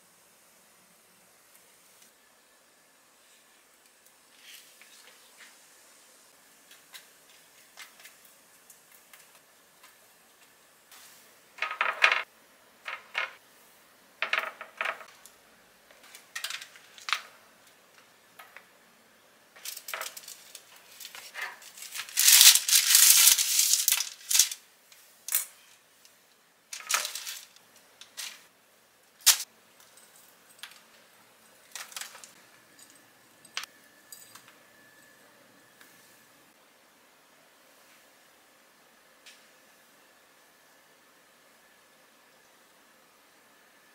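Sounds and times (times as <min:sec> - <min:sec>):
baking paper crinkling: 0:19.6 - 0:24.6, 0:26.8 - 0:28.5
utensils clattering on wire basket: 0:19.6 - 0:24.6, 0:26.8 - 0:27.5.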